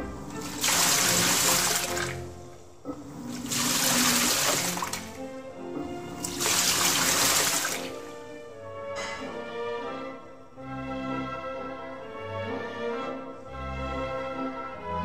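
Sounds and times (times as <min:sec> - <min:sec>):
background music: 0:00.0 - 0:15.0
washing machine water splashing: 0:00.2 - 0:08.2.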